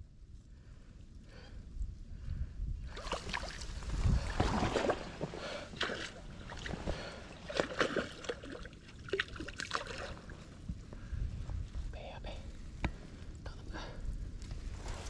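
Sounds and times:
fish splashing at the surface: 0:02.9 - 0:10.3
water sloshing through net: 0:02.9 - 0:10.4.

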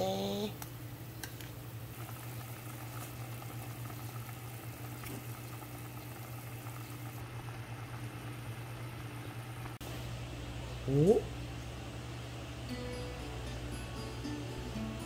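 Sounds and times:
broth boiling and bubbling: 0:00.0 - 0:10.5
low steady hum: 0:00.0 - 0:15.0.

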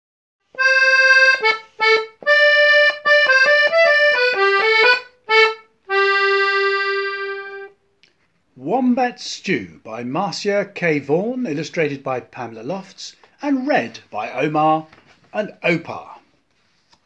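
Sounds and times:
solo instrumental tune: 0:00.5 - 0:07.8.

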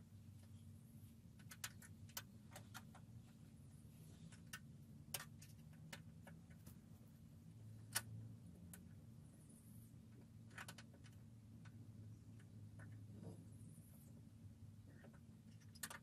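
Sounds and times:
low steady hum: 0:00.0 - 0:16.0
small clicks and taps: 0:01.3 - 0:03.4, 0:04.2 - 0:06.9, 0:14.8 - 0:16.0.

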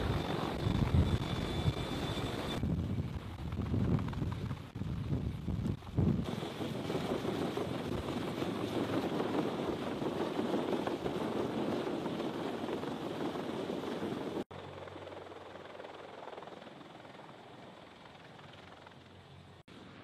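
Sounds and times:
distant helicopter: 0:00.0 - 0:20.0
helicopter rotor and turbine noise: 0:00.0 - 0:20.0.

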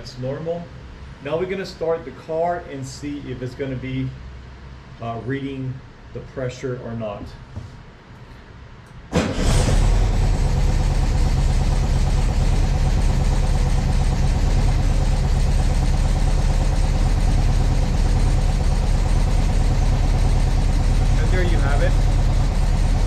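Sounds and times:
car engine starting and running: 0:09.1 - 0:23.0.

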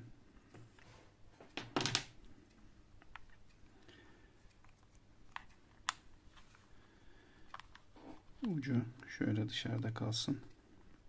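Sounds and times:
small clicks and taps of handling: 0:00.4 - 0:03.7, 0:04.5 - 0:06.6, 0:07.4 - 0:09.1.

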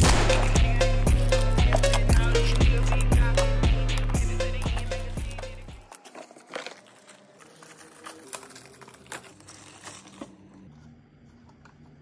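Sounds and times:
plastic packaging crinkling: 0:05.1 - 0:10.7.

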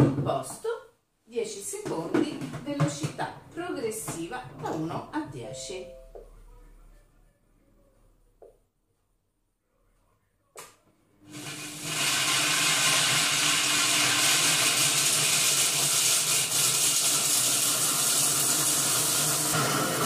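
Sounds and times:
food processor chopping biscuits: 0:11.3 - 0:20.0.

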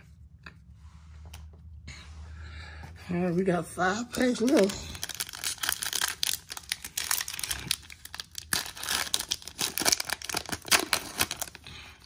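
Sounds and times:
foil wrapper tearing and crinkling: 0:04.3 - 0:12.0.

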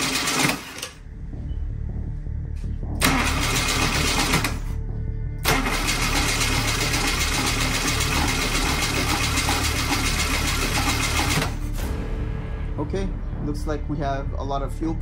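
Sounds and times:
starter motor cranking engine: 0:00.0 - 0:01.0, 0:03.0 - 0:04.7, 0:05.4 - 0:11.6.

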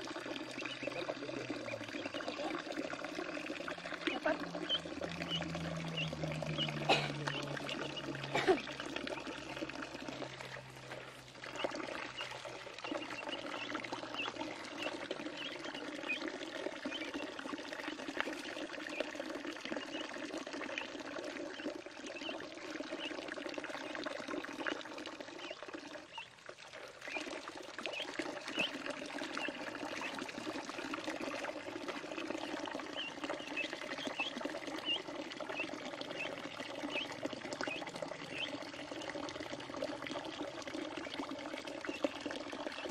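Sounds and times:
water splashing in a pool: 0:00.0 - 0:42.9
duckling peeps: 0:00.3 - 0:03.3, 0:03.9 - 0:17.3, 0:18.2 - 0:20.2, 0:20.8 - 0:23.2, 0:25.4 - 0:26.3, 0:27.0 - 0:39.2.

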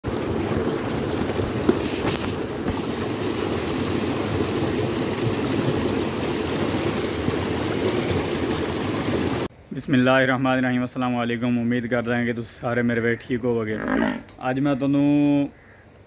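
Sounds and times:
water rushing into pond: 0:00.0 - 0:09.5.

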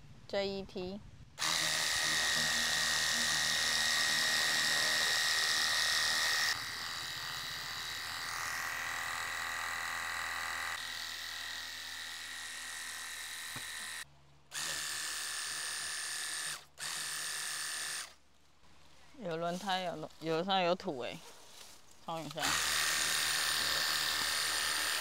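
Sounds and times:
pump motor whining: 0:01.4 - 0:18.2, 0:22.3 - 0:25.0.

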